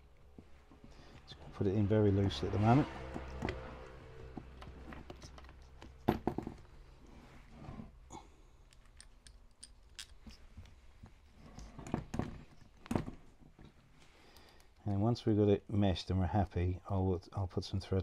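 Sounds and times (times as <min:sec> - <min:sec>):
metal hardware clicks and knocks: 0:03.1 - 0:06.7, 0:08.7 - 0:10.8.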